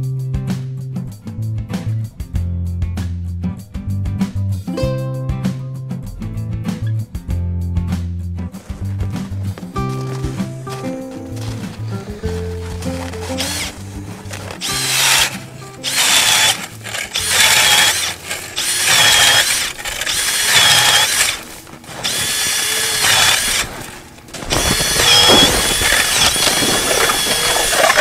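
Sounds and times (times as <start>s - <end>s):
background music: 0.0s - 28.0s
high squeak of auger blades: 9.9s - 28.0s
ice auger grinding through ice: 9.9s - 28.0s.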